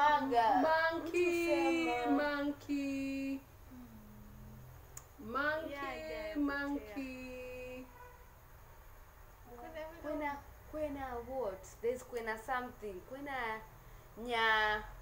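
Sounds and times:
woman singing: 0.0s - 3.5s, 5.2s - 7.9s
woman humming softly: 3.7s - 4.7s.

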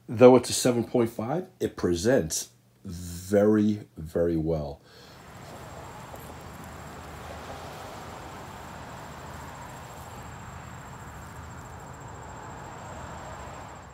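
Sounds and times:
high-pitched insect trill: 5.2s - 13.9s.

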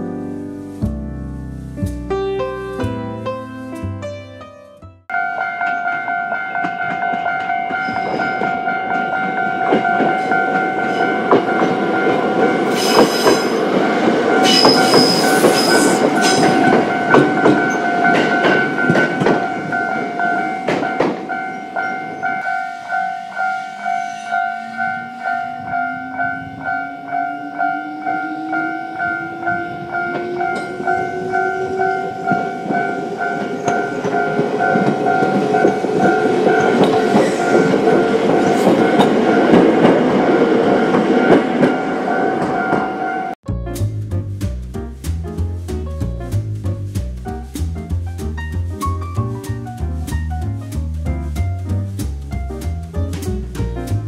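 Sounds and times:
level-crossing warning bell: 5.1s - 43.4s
train wheels rumbling and clicking: 5.6s - 22.5s, 29.3s - 42.9s, 43.8s - 54.0s.

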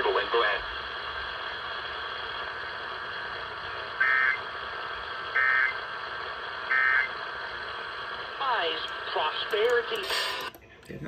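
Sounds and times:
radio hiss: 0.0s - 11.0s
digital data tone bursts: 4.0s - 4.4s, 5.3s - 5.8s, 6.7s - 7.2s.

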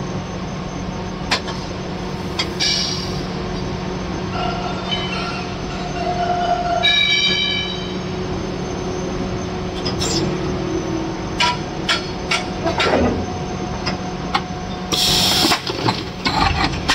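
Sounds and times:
loud hiss: 14.9s - 15.6s.

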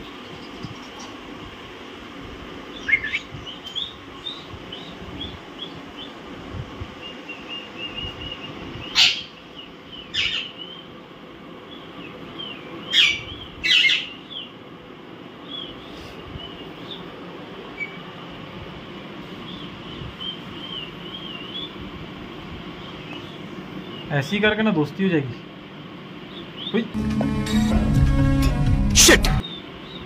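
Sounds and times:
parakeets chirping softly: 0.1s - 1.3s, 7.0s - 10.9s, 11.6s - 14.5s, 19.2s - 21.9s
parakeets squawking harshly: 8.9s - 9.4s, 10.1s - 10.5s, 12.9s - 14.2s.

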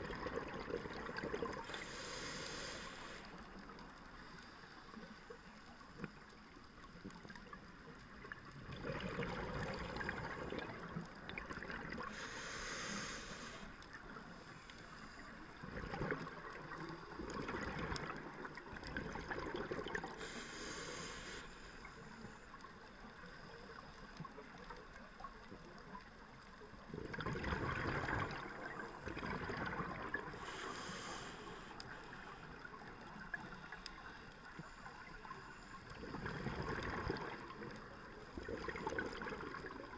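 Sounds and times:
exhaled air bubbling underwater: 0.0s - 4.3s, 5.6s - 39.9s
regulator inhale hiss: 1.5s - 5.9s, 11.9s - 15.6s, 20.0s - 23.9s, 30.2s - 36.0s.

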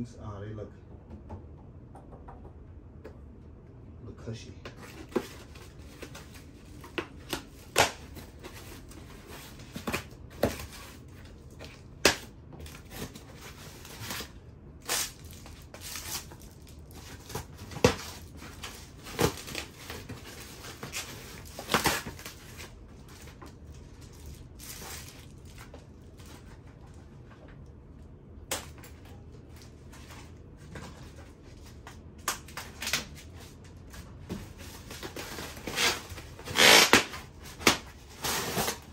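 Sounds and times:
packaging crinkling: 12.6s - 26.5s.

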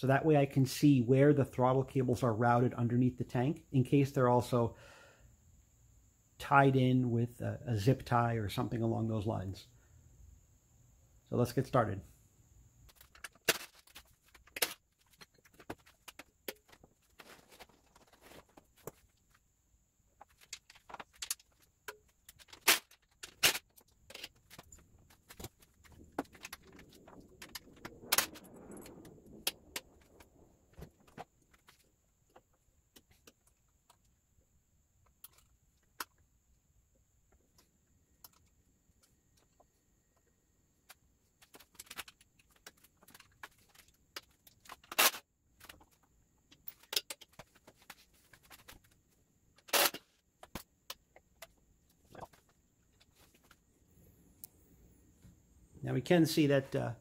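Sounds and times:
rustling noise: 12.8s - 19.5s, 20.2s - 33.4s, 40.9s - 50.6s, 52.0s - 54.2s.

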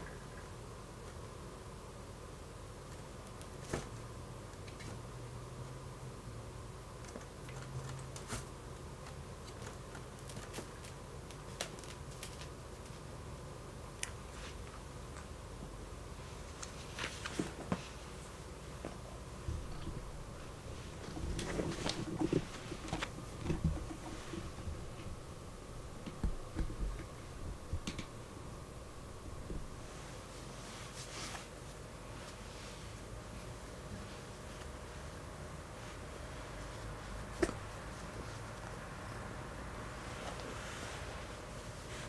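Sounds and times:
low steady hum: 0.0s - 42.0s
soft rustling on a rug: 14.2s - 14.8s, 16.1s - 42.0s
light thumps: 19.4s - 29.8s.

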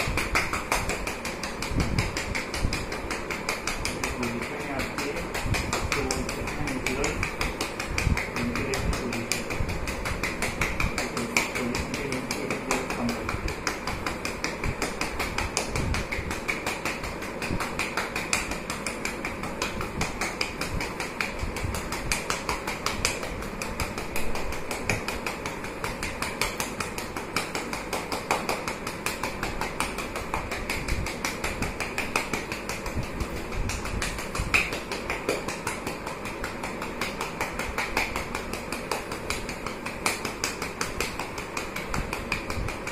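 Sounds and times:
gloved hand patting a back: 0.0s - 42.9s.

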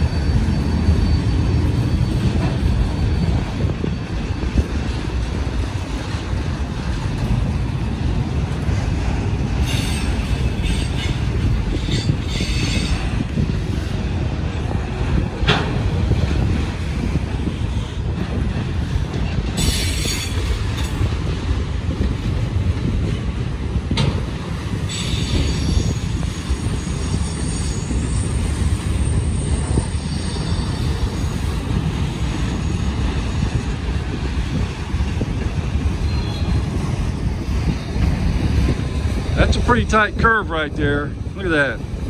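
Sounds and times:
wheel flange squeal: 0.0s - 4.9s, 9.6s - 13.2s, 19.6s - 20.5s, 24.9s - 31.6s, 32.2s - 33.7s, 36.0s - 36.7s
freight train cars rumbling: 0.0s - 42.0s.

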